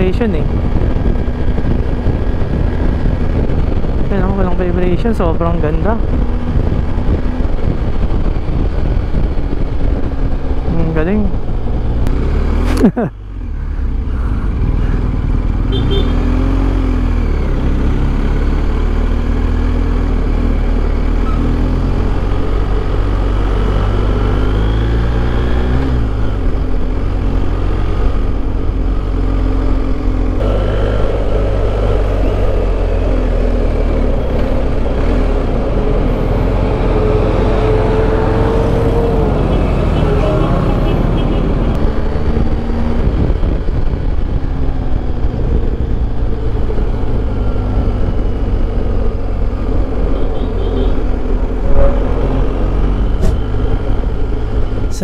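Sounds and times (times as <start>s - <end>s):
wind and road noise: 0.0s - 55.0s
motorcycle engine revving: 13.6s - 55.0s.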